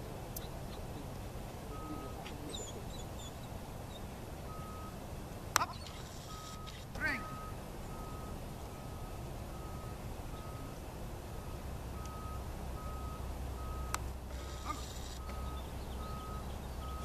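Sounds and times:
reversing alarm beeping: 1.7s - 2.8s, 4.5s - 5.0s, 5.7s - 17.0s.

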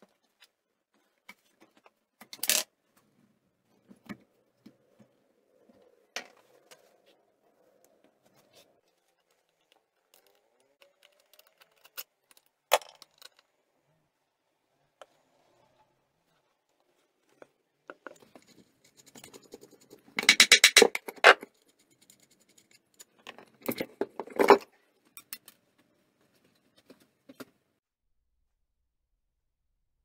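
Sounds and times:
metal parts clicking and clinking: 9.5s - 13.5s.

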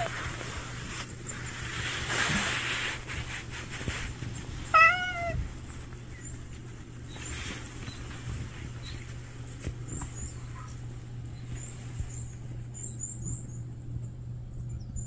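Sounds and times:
cat meowing: 4.7s - 5.5s.

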